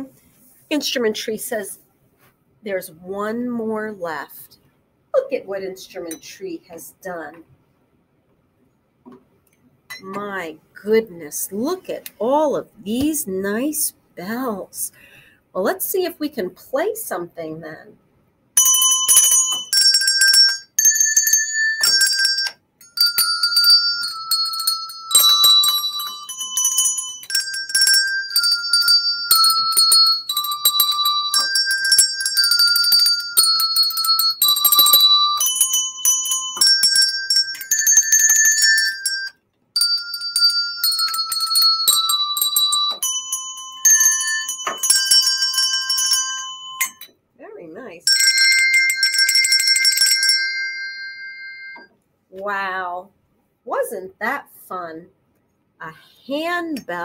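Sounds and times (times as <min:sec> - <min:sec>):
handbells playing melody: 0:18.6 - 0:47.1, 0:48.0 - 0:51.9.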